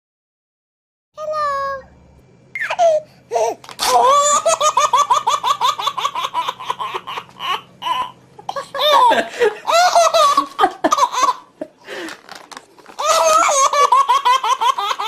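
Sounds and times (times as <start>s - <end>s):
high-pitched giggling: 13.0s - 15.0s.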